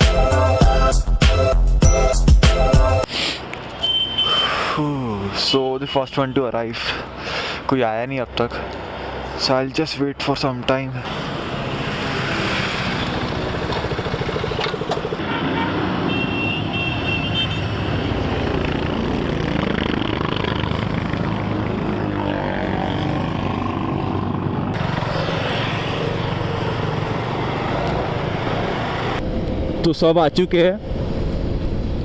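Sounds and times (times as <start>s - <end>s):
road traffic: 3.0s - 32.0s
motorcycle engines running: 11.1s - 15.3s, 17.9s - 29.2s.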